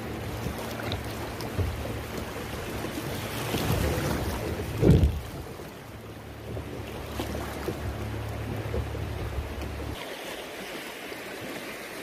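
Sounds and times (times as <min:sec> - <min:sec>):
river water rushing: 0:00.0 - 0:12.0
wind on microphone: 0:01.5 - 0:05.7.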